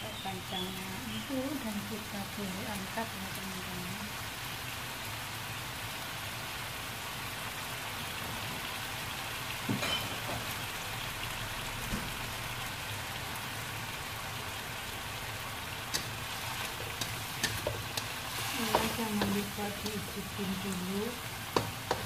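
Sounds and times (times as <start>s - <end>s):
food sizzling in a wok: 0.0s - 22.0s.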